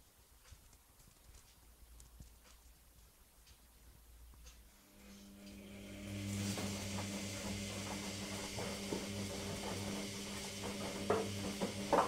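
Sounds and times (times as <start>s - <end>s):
washing machine motor humming: 4.5s - 12.0s
wet laundry sloshing and knocking: 6.2s - 12.0s.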